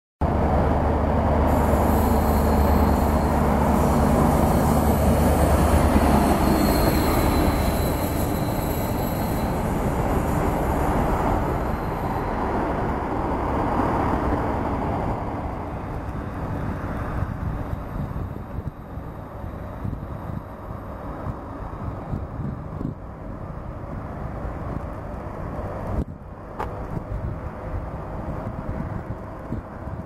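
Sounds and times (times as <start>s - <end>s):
locomotive hum: 0.2s - 30.0s
wheels rumbling on rails: 0.2s - 30.0s
metallic wheel squeal: 1.5s - 10.6s.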